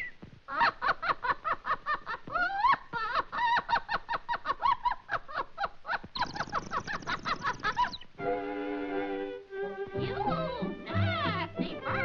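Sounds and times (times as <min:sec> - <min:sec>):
cartoon bird chirping: 0:06.1 - 0:08.2.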